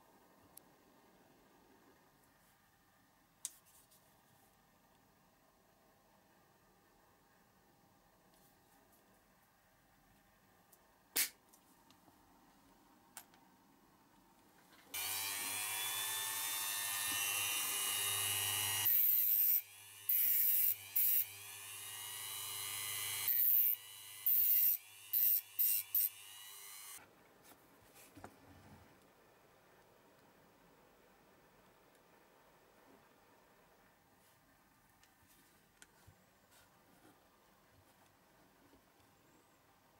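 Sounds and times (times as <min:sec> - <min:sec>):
rotary tool whining: 0:15.0 - 0:27.0.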